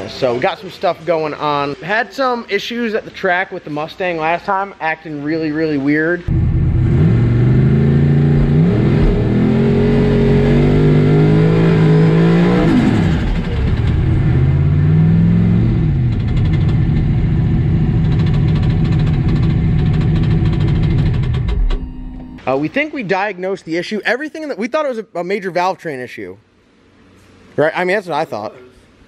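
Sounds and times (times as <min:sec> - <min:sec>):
car engine revving: 0:06.3 - 0:22.3.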